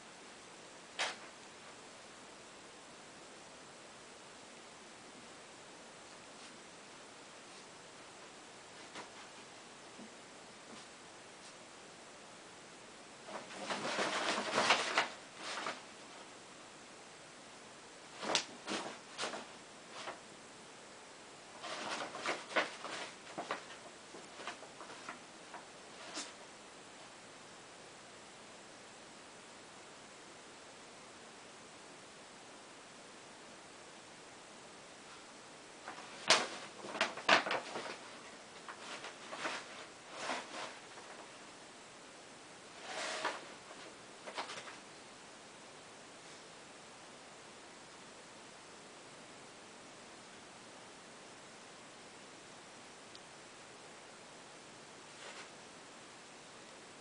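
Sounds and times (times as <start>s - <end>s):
paper bag crinkling and crackling: 13.3s - 15.9s, 21.5s - 26.4s, 35.8s - 41.3s.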